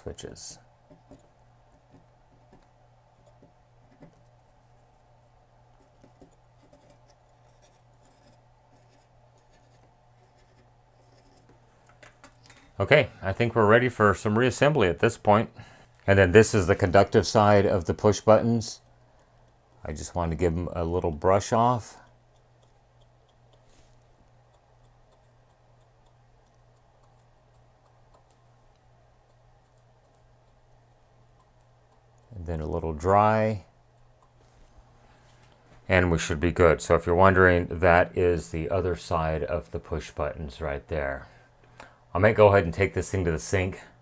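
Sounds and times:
low steady hum: 0.0s - 44.0s
cotton swab scratching circuit board: 0.9s - 11.6s, 16.5s - 33.1s
cotton swab ticking on keypad: 22.0s - 23.7s, 24.3s - 32.3s.

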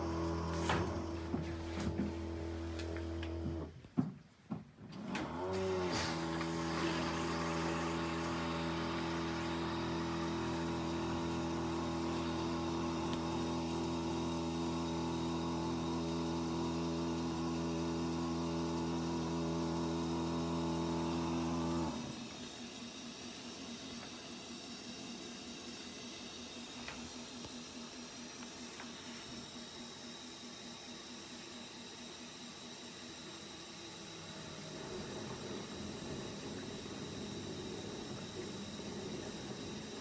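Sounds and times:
motor whine: 0.0s - 3.8s, 5.0s - 40.0s
dishwasher pump motor humming: 0.0s - 40.0s.

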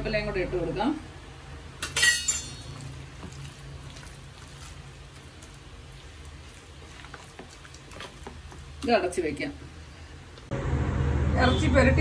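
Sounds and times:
wet squishing of marinade: 2.6s - 9.5s.

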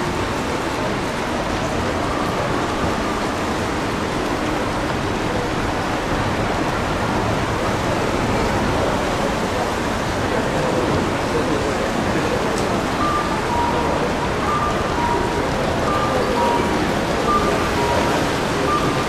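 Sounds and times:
runners and crowd roadside noise: 0.0s - 19.0s.

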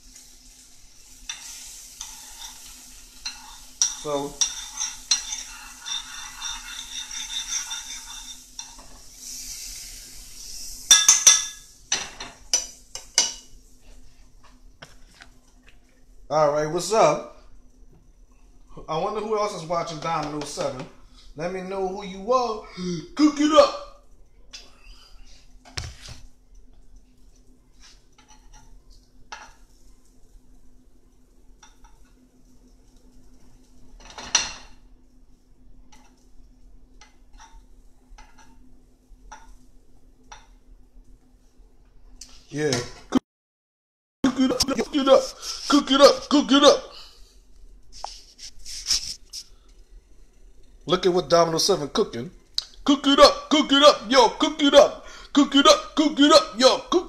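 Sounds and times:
soft hiss: 0.0s - 16.6s, 44.6s - 53.6s
metallic clatter with ring: 1.3s - 8.8s
metal utensil clinking on cookware: 1.3s - 8.9s.

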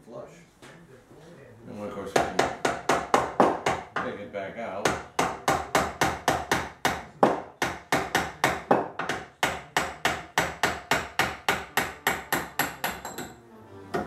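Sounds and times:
hammer tapping on steel: 4.8s - 14.0s.

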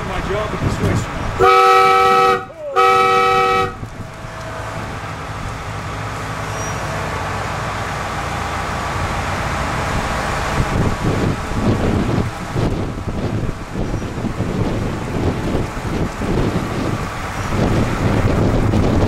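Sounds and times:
train horn blast: 1.4s - 4.8s.

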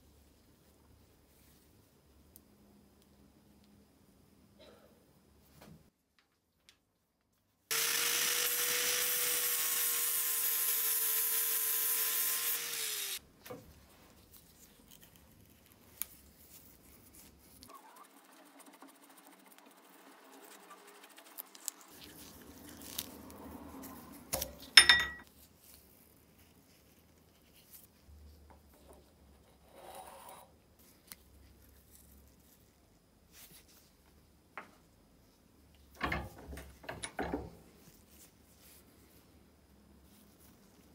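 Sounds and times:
angle grinder grinding metal: 7.7s - 13.2s
handling loose metal parts: 24.4s - 25.2s.

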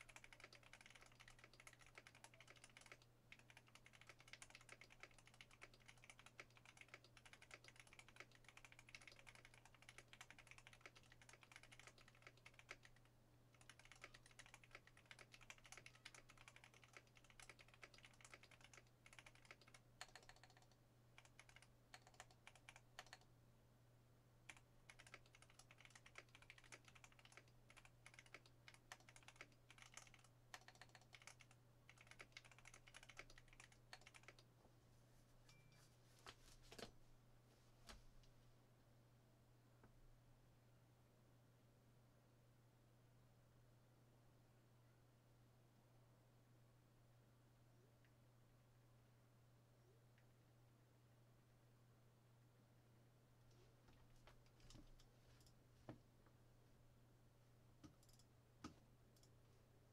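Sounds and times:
fast mechanical keyboard typing: 0.0s - 23.3s, 24.5s - 34.4s, 57.8s - 58.3s.

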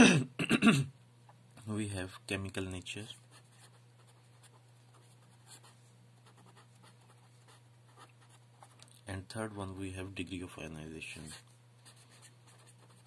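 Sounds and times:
steady low hum: 0.0s - 13.0s
felt-tip pen scratching on paper: 11.2s - 13.0s.

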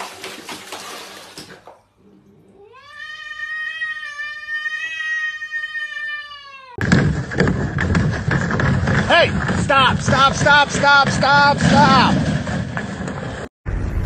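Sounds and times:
water sloshing in a basin: 0.0s - 2.0s
cat yowling: 2.6s - 6.8s.

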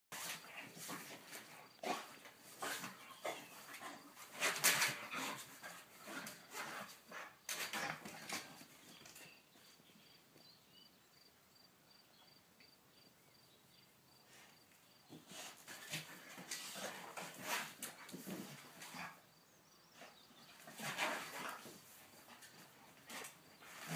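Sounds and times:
puppy noises: 0.3s - 9.1s.

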